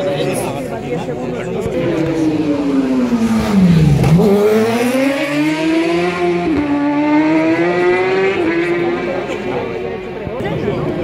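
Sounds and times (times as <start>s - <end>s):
motorcycle engine accelerating: 1.7s - 10.4s.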